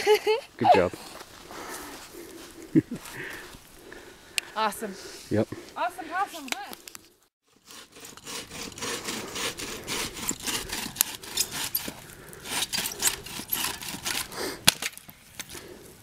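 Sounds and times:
hand saw cutting wood: 0:07.5 - 0:14.5.

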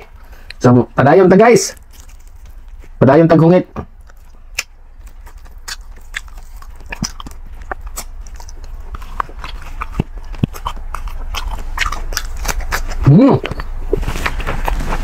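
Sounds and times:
crunchy chewing: 0:01.6 - 0:15.0
wet mouth smacks: 0:04.0 - 0:14.8.

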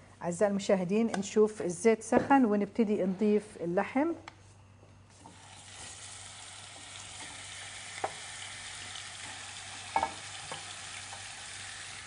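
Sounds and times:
meat sizzling in hot oil: 0:05.3 - 0:12.0.

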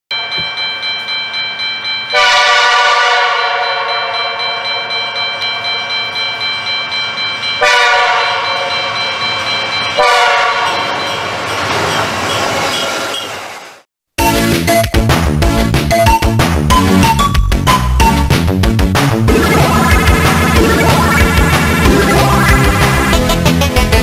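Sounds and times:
crossing warning bell ringing: 0:00.1 - 0:13.2
locomotive air horn blasts: 0:02.2 - 0:04.4, 0:07.6 - 0:08.4, 0:10.0 - 0:10.8.

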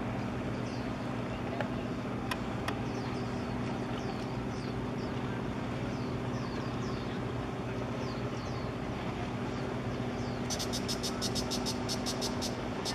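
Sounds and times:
vessel engines droning: 0:00.0 - 0:12.9
high chirps: 0:10.5 - 0:12.9.

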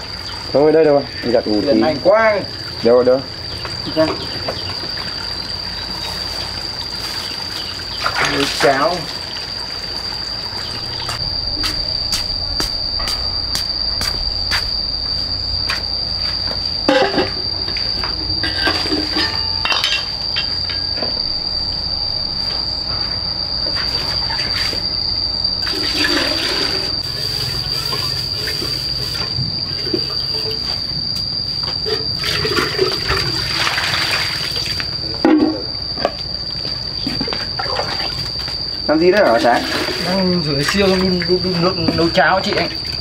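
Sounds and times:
high-pitched insect call: 0:00.0 - 0:43.0
water sloshing and pouring: 0:06.1 - 0:11.0, 0:25.6 - 0:29.2, 0:31.9 - 0:34.8, 0:37.6 - 0:38.3, 0:39.5 - 0:40.1.

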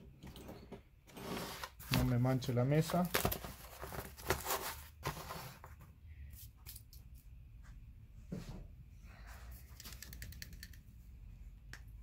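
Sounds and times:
cardboard rustling: 0:01.4 - 0:05.8.

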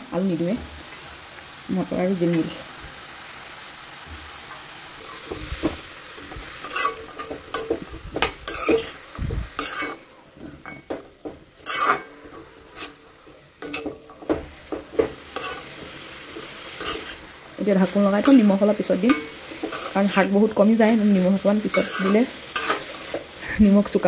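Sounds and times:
greens sizzling in a pan: 0:00.0 - 0:24.0
metal spoon scraping a pan: 0:04.5 - 0:23.4.

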